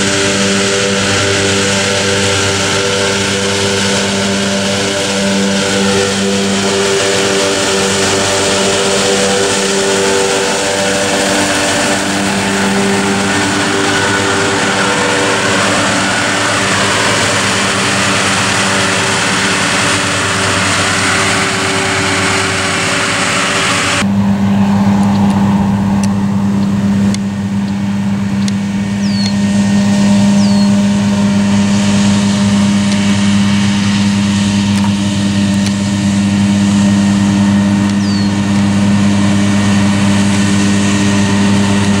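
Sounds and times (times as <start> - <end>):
hay mower diesel engine running: 0.0 - 42.0.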